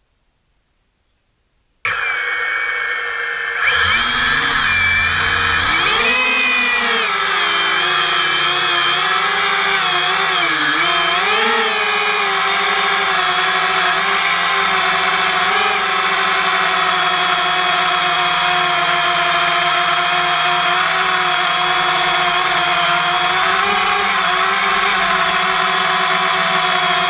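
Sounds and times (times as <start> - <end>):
drone motors whining: 1.9 - 27.0.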